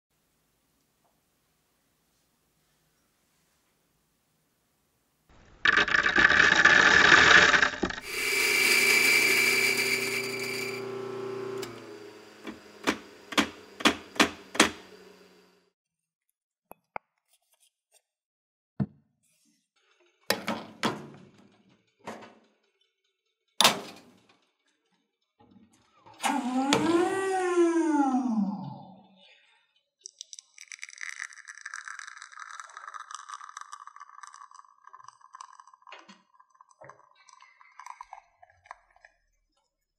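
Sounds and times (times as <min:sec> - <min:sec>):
coffee grinder grinding beans: 0:05.4 - 0:15.5, 0:30.1 - 0:37.2
espresso machine humming: 0:05.7 - 0:15.6
portafilter and tamper knocks: 0:12.4 - 0:14.9.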